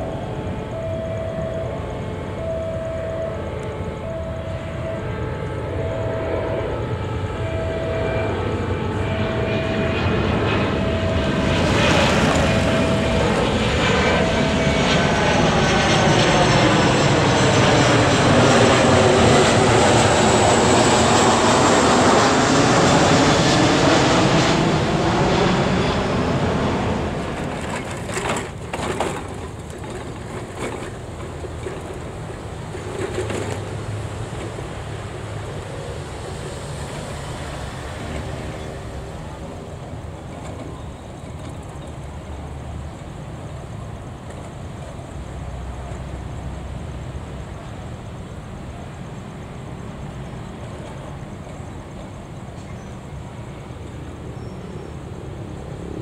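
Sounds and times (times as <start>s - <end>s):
train passing: 0.0s - 56.0s
level crossing alarm beeping: 0.1s - 6.4s, 7.4s - 14.9s.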